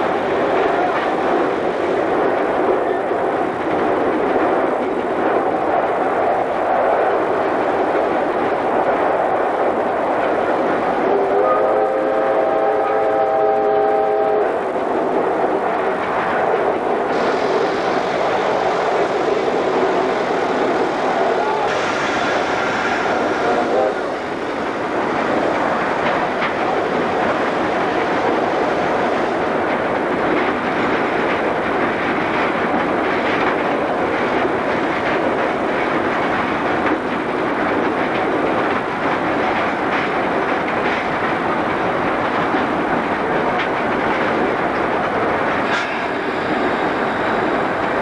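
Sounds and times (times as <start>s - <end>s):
steam locomotive cab din: 10.6s - 15.2s, 15.8s - 48.0s.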